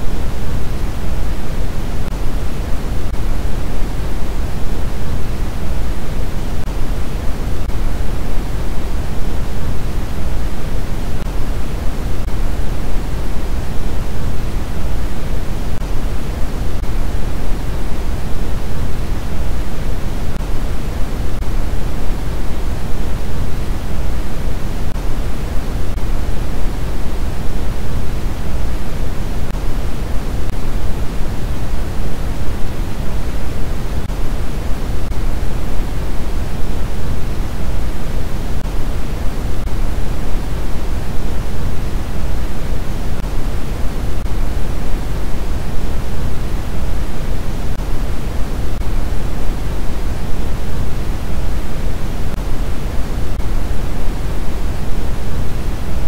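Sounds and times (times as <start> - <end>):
steady white noise hiss: 0.0 - 56.0.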